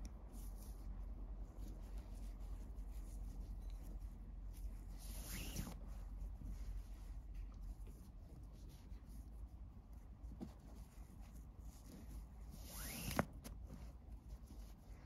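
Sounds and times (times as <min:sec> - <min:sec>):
cord rubbing and sliding: 0:00.3 - 0:15.0.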